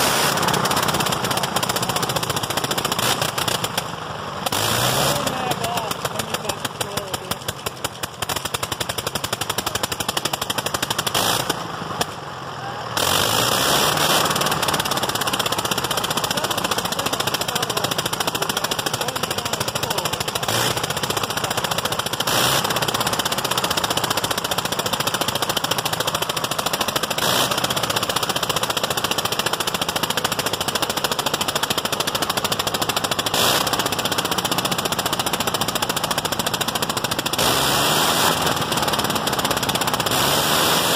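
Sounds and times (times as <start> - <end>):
rotary aircraft engine running: 0.0 - 40.9.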